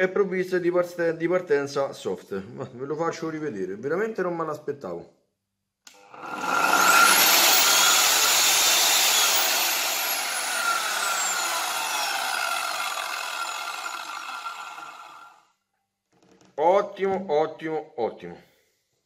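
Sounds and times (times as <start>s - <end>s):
circular saw whine: 6.0s - 15.4s.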